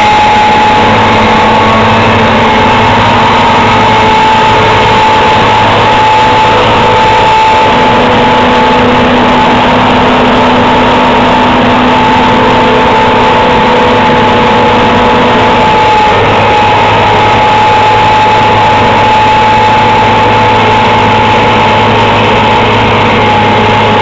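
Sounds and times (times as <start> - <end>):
combine harvester running: 0.0 - 24.0
steady high hum: 0.0 - 24.0.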